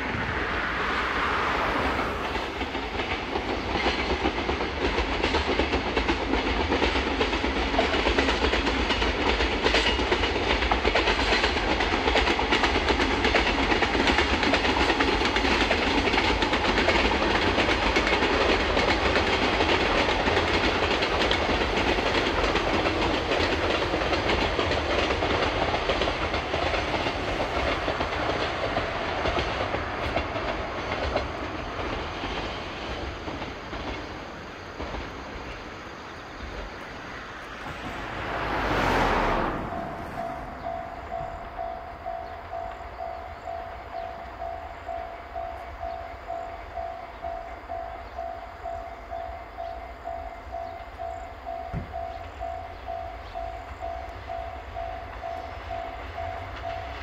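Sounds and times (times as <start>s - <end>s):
freight train rolling past: 0.0s - 57.0s
wheels clattering over rail joints: 1.2s - 45.0s.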